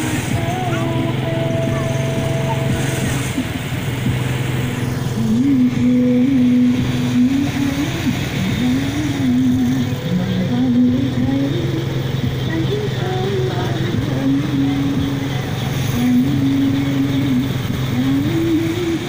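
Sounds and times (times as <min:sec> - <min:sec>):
person singing long wavering notes: 0:00.0 - 0:03.5
motorbike engines running: 0:00.0 - 0:19.0.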